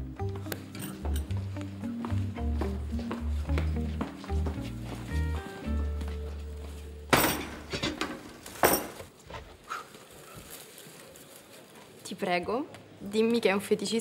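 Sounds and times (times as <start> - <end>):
background music: 0.0 - 8.2.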